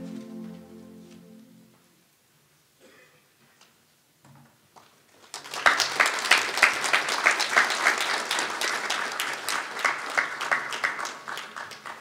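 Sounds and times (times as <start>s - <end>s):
crowd applauding: 5.2s - 12.0s.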